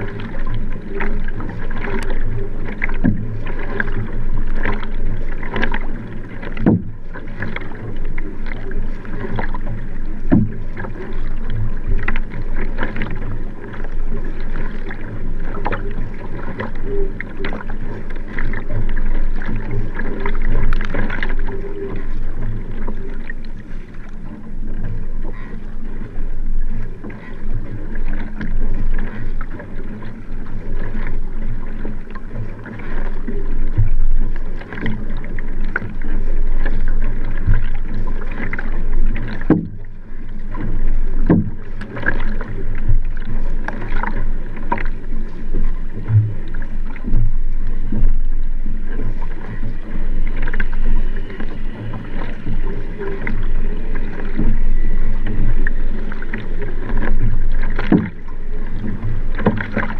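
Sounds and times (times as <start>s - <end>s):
paddle blade splashing: 0.0s - 59.9s
water rushing along a hull: 0.0s - 59.9s.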